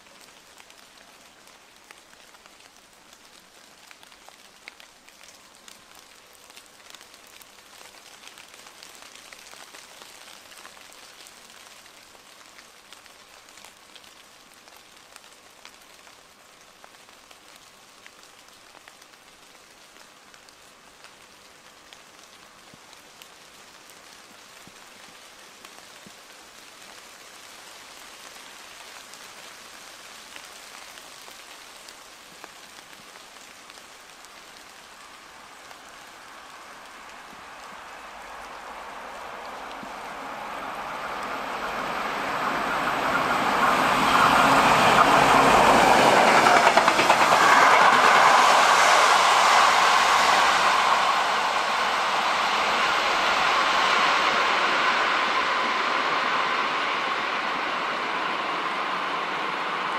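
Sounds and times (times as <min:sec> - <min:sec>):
light rain: 0:00.0 - 0:59.9
distant diesel locomotive hum: 0:34.8 - 0:59.9.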